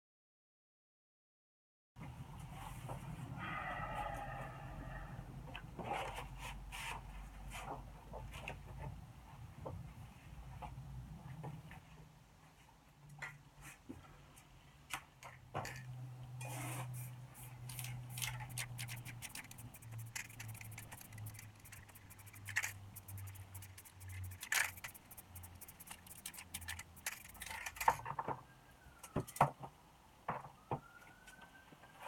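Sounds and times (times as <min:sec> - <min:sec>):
paper stencil handled on wood: 0:17.7 - 0:27.6
metal spray cans clicking and rattling: 0:17.7 - 0:28.0.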